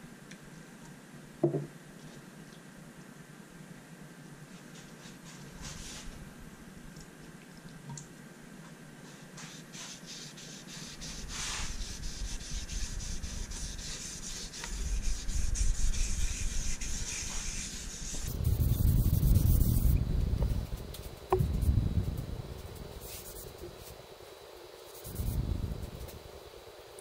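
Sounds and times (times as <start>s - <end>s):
low rumble: 18.3s - 23.9s, 25.2s - 26.4s.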